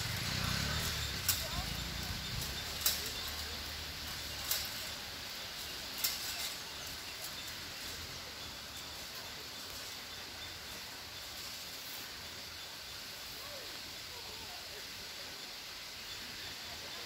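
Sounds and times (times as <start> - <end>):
outdoor background hiss: 0.0 - 17.0.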